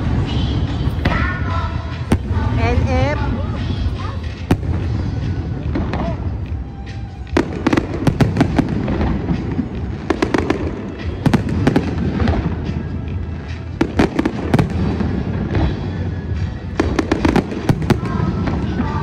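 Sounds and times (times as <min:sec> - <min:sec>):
fireworks bangs and crackles: 0:00.0 - 0:19.0.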